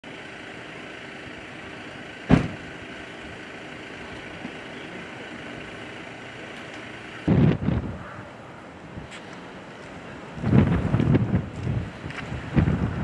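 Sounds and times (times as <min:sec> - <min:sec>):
vehicle engine idling: 0:00.0 - 0:13.0
sharp thump: 0:02.3 - 0:02.7.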